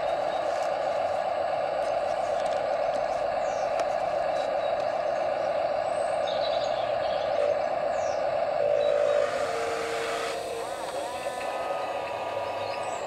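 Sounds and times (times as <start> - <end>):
small birds chirping: 0.0 - 9.2, 10.6 - 13.0
model vehicle motor drone: 6.3 - 13.0.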